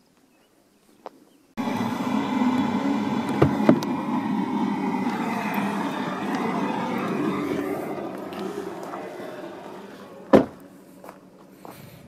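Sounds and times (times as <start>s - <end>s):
car engine rumble in cabin: 1.6s - 11.5s.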